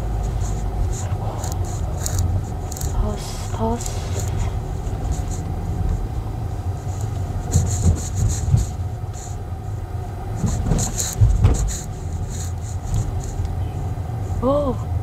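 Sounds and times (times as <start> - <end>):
car engine and road rumble: 0.0 - 15.0
knocks and rattles: 6.9 - 9.3, 10.3 - 13.4.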